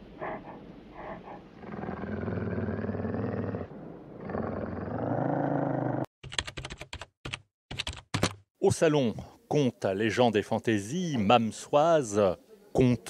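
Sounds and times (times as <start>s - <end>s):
deep animal growls: 0.0s - 6.1s.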